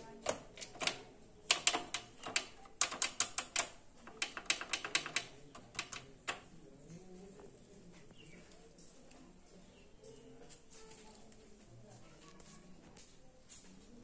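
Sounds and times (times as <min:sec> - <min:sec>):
metal clicks and rattles: 0:00.2 - 0:06.5.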